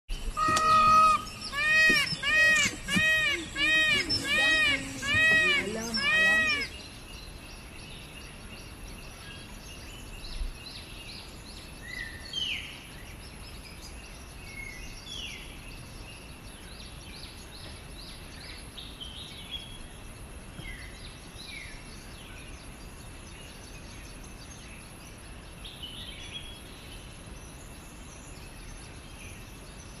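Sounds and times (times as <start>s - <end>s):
small birds chirping: 0.1s - 11.4s
loud wailing call: 0.2s - 6.8s.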